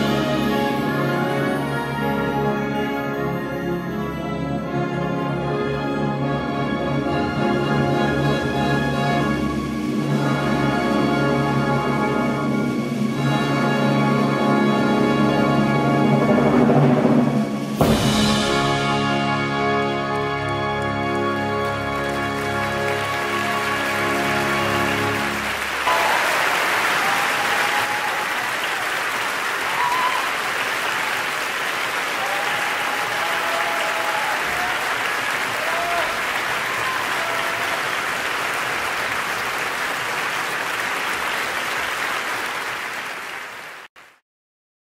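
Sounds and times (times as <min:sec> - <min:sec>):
orchestral chord: 0:00.0 - 0:25.9
audience applause: 0:20.1 - 0:44.2.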